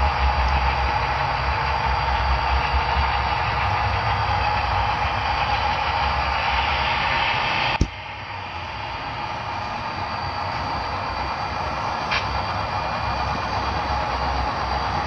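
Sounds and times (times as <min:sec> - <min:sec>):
model train running on track: 0:00.0 - 0:15.0.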